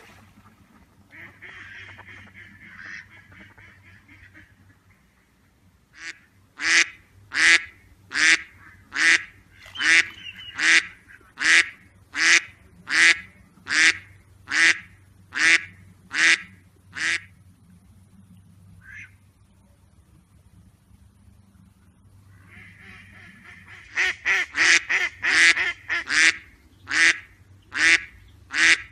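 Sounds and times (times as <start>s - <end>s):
duck quacking: 1.1s - 5.1s, 6.0s - 17.3s, 18.8s - 19.2s, 22.3s - 28.9s.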